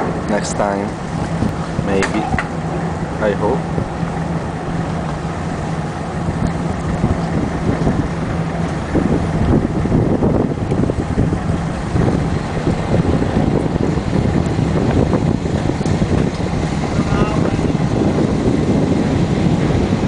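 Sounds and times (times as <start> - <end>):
ferry engine humming: 0.0 - 20.0
wind buffeting microphone: 0.0 - 20.0.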